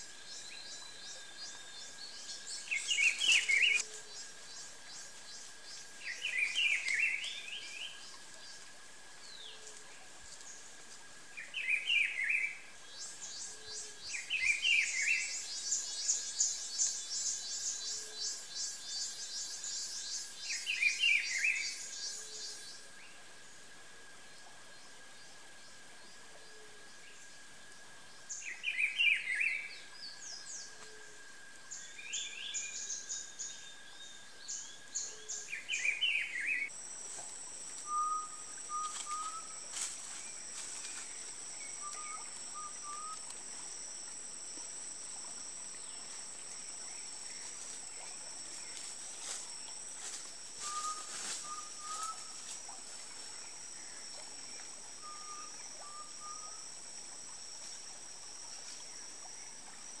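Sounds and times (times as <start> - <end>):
small birds chirping: 0.0 - 8.6
high-pitched insect drone: 0.0 - 60.0.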